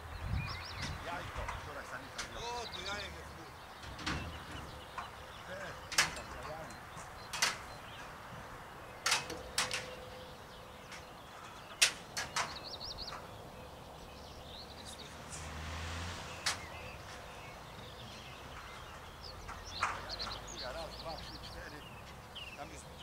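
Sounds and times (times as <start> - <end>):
bird twittering: 0.0 - 15.4, 16.2 - 23.0
sharp clacks and knocks: 3.8 - 8.2, 9.0 - 10.1, 10.8 - 13.4, 16.4 - 20.8.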